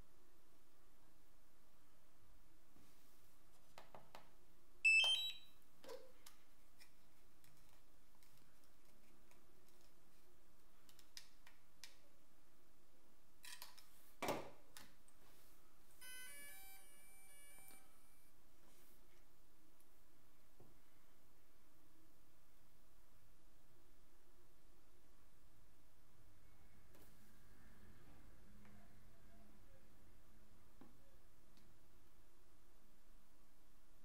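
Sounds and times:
drone startup beeps: 0:04.9 - 0:05.4, 0:16.0 - 0:18.2
remote controller beep: 0:04.9 - 0:05.5, 0:16.0 - 0:18.2.

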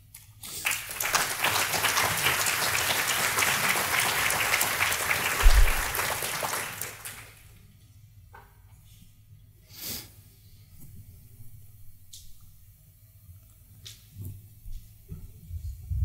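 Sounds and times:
audience applauding: 0:00.5 - 0:07.5
short low thump: 0:05.4 - 0:05.9.

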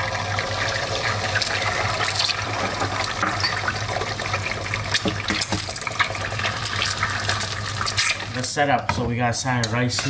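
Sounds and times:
egg sizzling in oil: 0:00.0 - 0:08.5
oil crackling and popping: 0:00.5 - 0:08.5.

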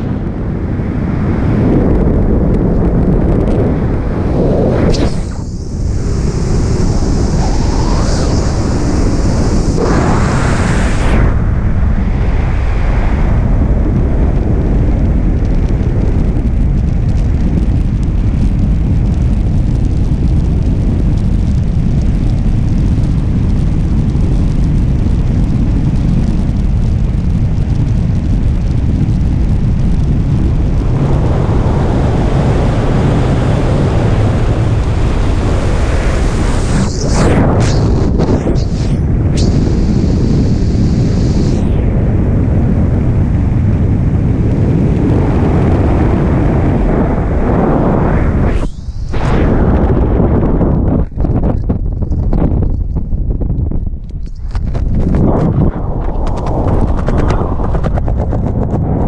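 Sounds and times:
wind roaring over microphone: 0:00.0 - 0:59.0
high hiss: 0:04.6 - 0:11.1, 0:36.3 - 0:41.6.

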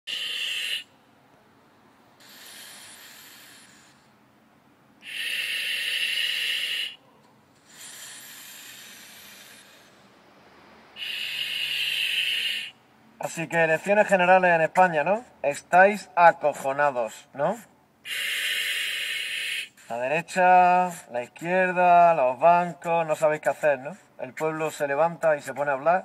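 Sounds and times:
breathing through gas mask: 0:00.1 - 0:00.9, 0:02.2 - 0:04.2, 0:05.0 - 0:07.0, 0:07.6 - 0:10.2, 0:11.0 - 0:12.8, 0:18.0 - 0:20.0.

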